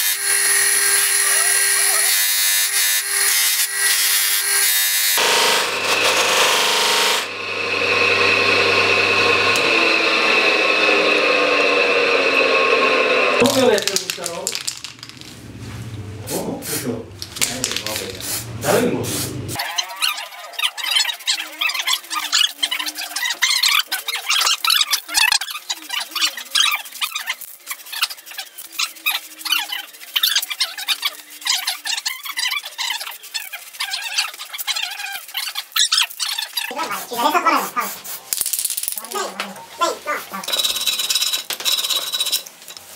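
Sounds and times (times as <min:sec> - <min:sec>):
bench grinder whine: 0:00.0 - 0:13.7
steel grinding on wheel: 0:04.6 - 0:13.7, 0:19.6 - 0:37.4
spray paint can hissing: 0:17.4 - 0:18.5.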